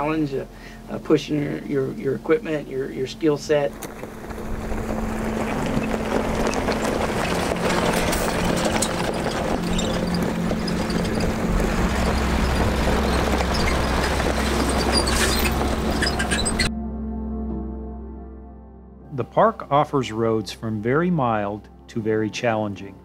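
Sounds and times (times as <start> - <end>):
tyres crunching dry grass: 3.5 - 16.7
vehicle engine running low: 3.8 - 16.7.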